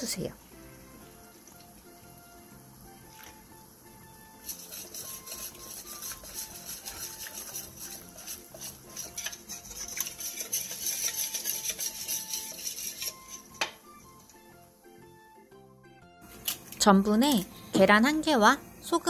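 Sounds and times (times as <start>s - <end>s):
whisk clinking against bowl: 4.4s - 13.8s
wire whisk scraping metal bowl: 4.4s - 13.8s.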